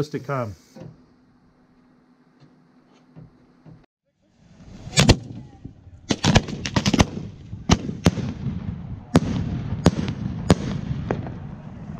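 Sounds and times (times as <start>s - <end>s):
fireworks banging and cracking: 4.7s - 11.9s.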